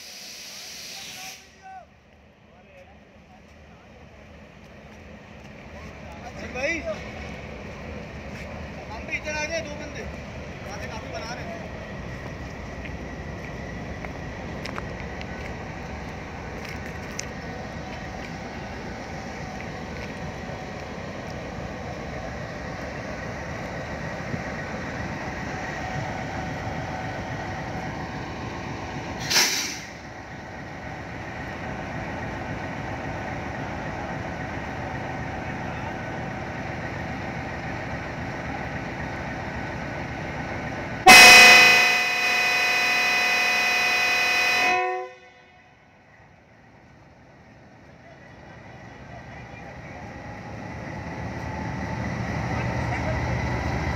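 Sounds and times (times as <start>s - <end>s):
locomotive engine running: 2.0s - 53.9s
locomotive air horn: 41.0s - 45.8s.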